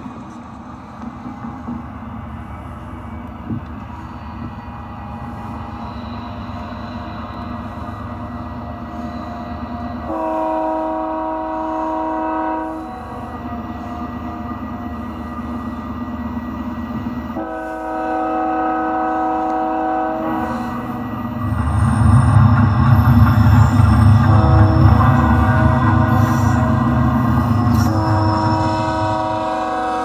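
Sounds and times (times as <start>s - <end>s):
model train rumbling: 0.0s - 30.0s
diesel locomotive horn: 6.0s - 14.9s, 17.3s - 21.0s, 23.5s - 30.0s.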